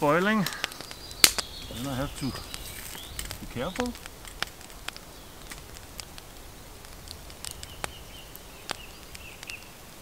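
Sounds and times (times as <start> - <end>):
wood fire crackling and popping: 0.0 - 10.0.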